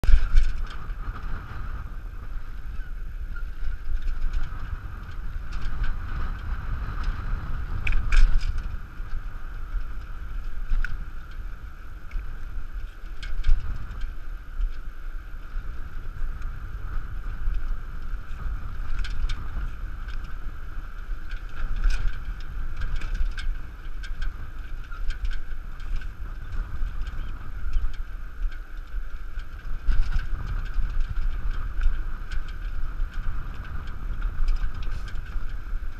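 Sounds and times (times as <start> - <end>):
cart rolling over wet sand: 0.0 - 35.9
wind rumbling on microphone: 0.0 - 35.9
clicks and rattles from rig: 7.8 - 9.1, 21.2 - 35.8.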